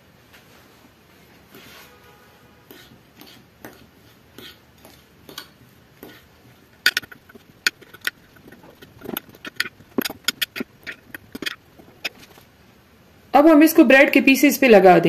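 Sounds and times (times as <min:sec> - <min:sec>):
fork scraping glass dish: 0:02.6 - 0:06.3, 0:06.9 - 0:12.2.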